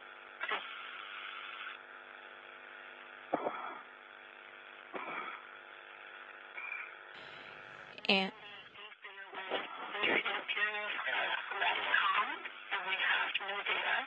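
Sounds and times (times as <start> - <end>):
radio hum and hiss: 0.0 - 14.0.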